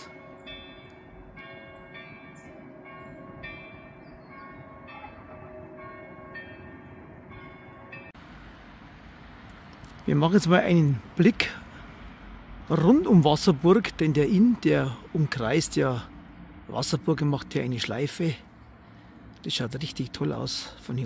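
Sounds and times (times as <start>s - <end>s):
church bells ringing: 0.0s - 8.2s.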